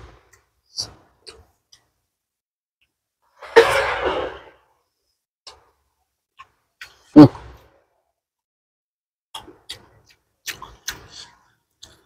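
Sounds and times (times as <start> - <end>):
mouth clicks and smacks: 9.3 - 12.0.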